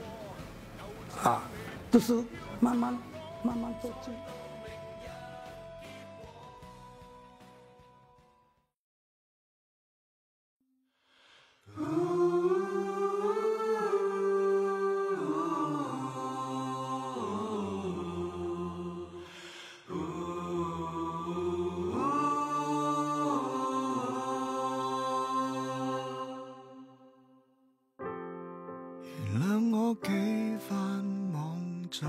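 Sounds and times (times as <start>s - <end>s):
person singing wordlessly: 0.0s - 8.2s, 11.7s - 19.2s, 19.9s - 26.8s, 29.2s - 32.0s.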